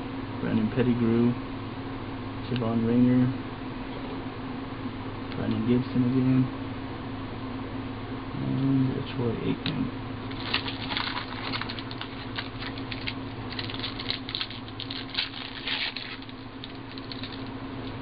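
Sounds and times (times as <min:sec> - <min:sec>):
plastic wrapper crinkling: 0:10.3 - 0:17.6.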